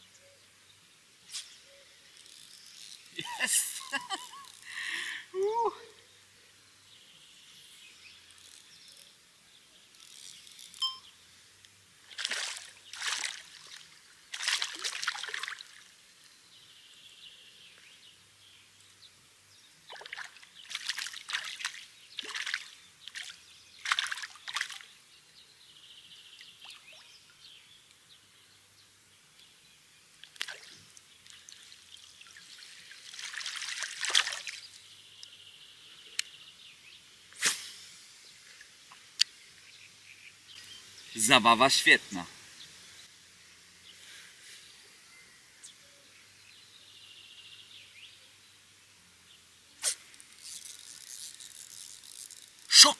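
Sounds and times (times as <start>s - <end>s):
water splashing and trickling: 12.0s - 16.1s, 19.8s - 25.0s, 30.2s - 34.9s.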